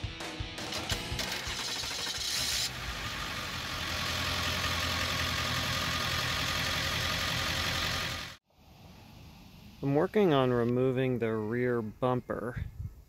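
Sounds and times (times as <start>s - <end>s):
van engine idling: 1.2s - 8.4s.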